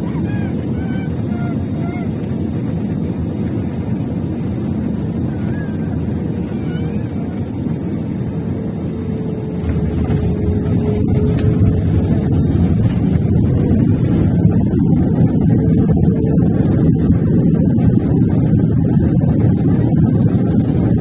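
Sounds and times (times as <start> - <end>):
engines and wheels rumbling: 0.0 - 21.0.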